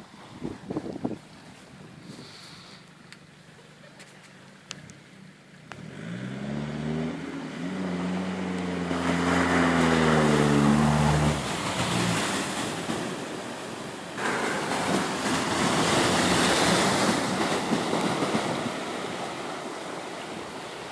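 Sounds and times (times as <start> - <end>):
water splashing and rushing: 0.0 - 20.9
car engine revving under load: 5.6 - 12.6.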